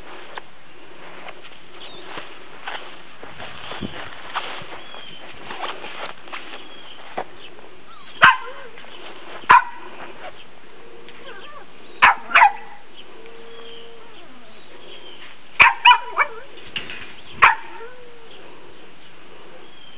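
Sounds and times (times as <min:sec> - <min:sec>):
puppy yapping: 0:07.9 - 0:08.7, 0:11.2 - 0:12.8, 0:15.6 - 0:16.5, 0:17.4 - 0:18.0.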